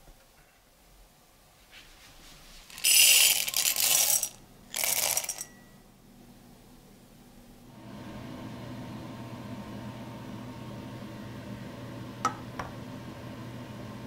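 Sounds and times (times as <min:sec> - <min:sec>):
chocolate discs clattering in glass bowl: 0:02.8 - 0:05.6.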